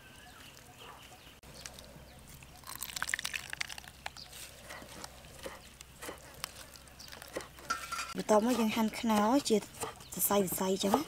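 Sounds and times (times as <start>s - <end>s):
wet coconut squelching by hand: 1.6s - 7.6s
milk dripping through strainer: 2.5s - 4.2s.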